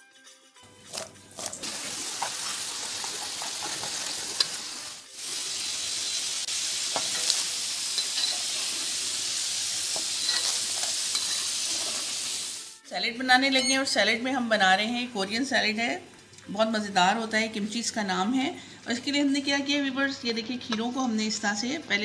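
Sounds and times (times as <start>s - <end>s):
fries sizzling in hot oil: 0.7s - 12.8s.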